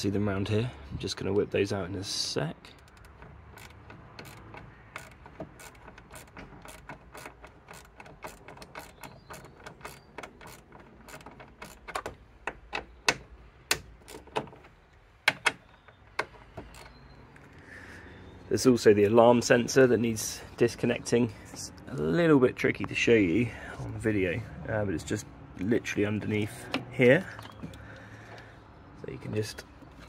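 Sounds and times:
socket ratchet clicking: 2.7s - 14.6s.

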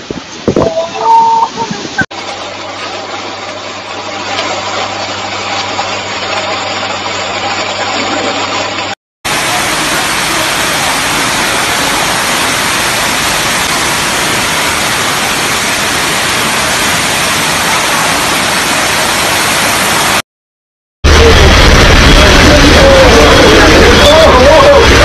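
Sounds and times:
water rushing: 9.3s - 20.2s.

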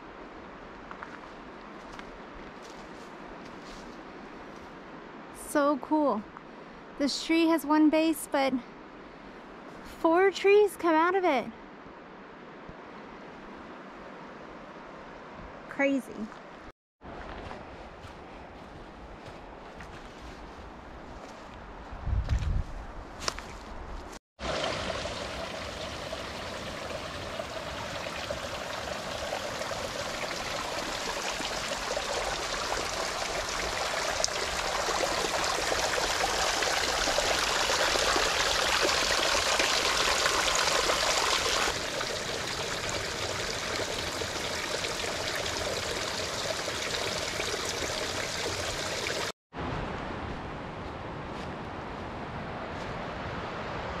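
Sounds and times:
mountain stream rushing: 24.4s - 50.2s.

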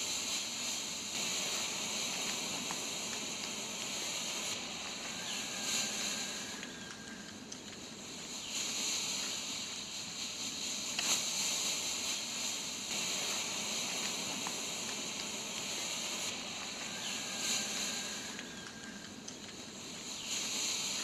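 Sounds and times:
smoke grenades hissing: 8.2s - 18.9s.

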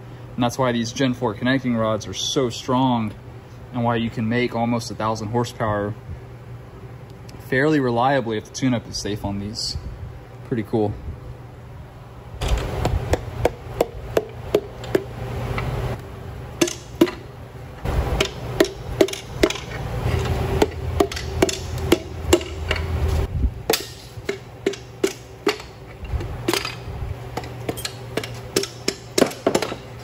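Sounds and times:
hammer tapping on metal: 20.6s - 22.9s, 27.4s - 29.8s.

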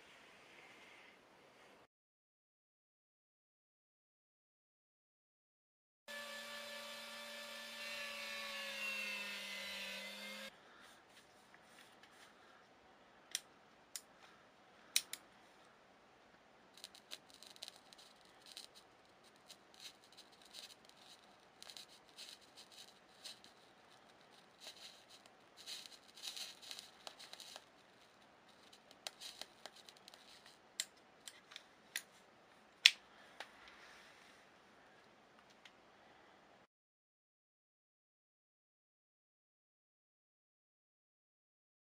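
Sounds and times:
laser welding crackling: 16.8s - 23.6s, 24.3s - 27.7s.

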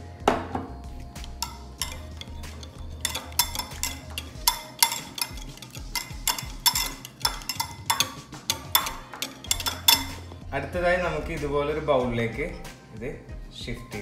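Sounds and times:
whisk clicking against glass bowl: 1.2s - 10.4s.

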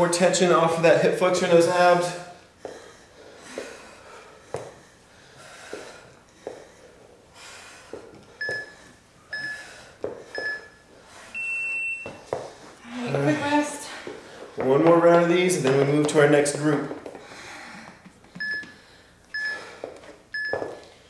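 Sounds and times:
longer higher beep: 11.4s - 12.2s
short electronic beeps: 11.4s - 12.2s, 19.4s - 19.6s, 20.4s - 20.7s.

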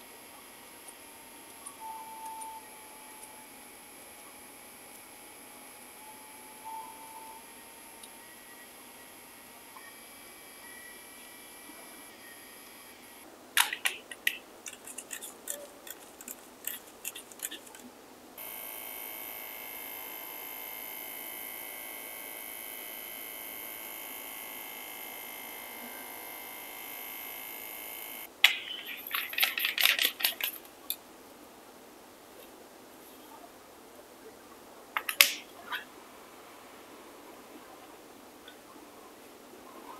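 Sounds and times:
tattoo pen buzzing: 0.0s - 13.2s, 18.4s - 28.3s
pen clicks and rattles: 13.6s - 17.9s, 28.9s - 30.7s.

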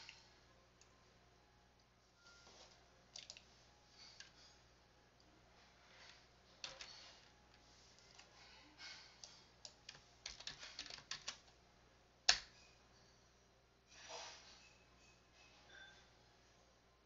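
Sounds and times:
keyboard keys clicking: 9.2s - 11.5s.

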